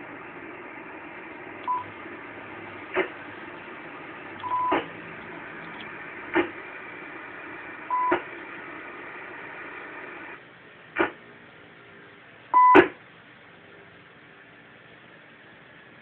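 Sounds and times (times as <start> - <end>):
radio hiss: 0.0 - 10.4, 11.0 - 11.2
short radio beeps: 4.4 - 4.8, 12.6 - 12.9.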